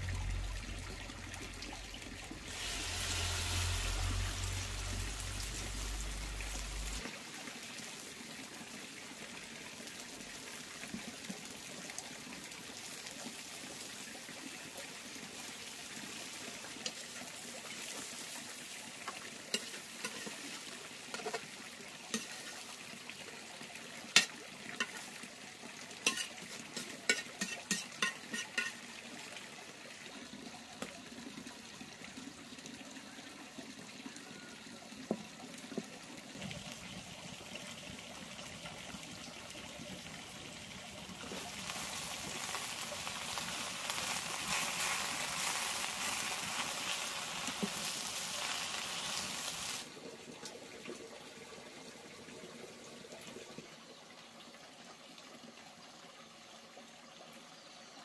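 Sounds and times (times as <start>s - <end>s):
eggs sizzling in hot oil: 0.0s - 30.9s, 35.1s - 50.0s.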